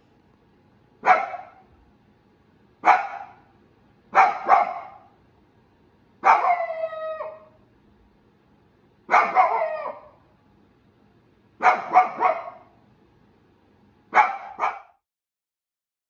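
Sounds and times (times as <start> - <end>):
dog barking: 1.0 - 1.7, 2.8 - 3.5, 4.1 - 5.2, 6.2 - 7.6, 9.1 - 10.2, 11.6 - 12.8, 14.1 - 15.0.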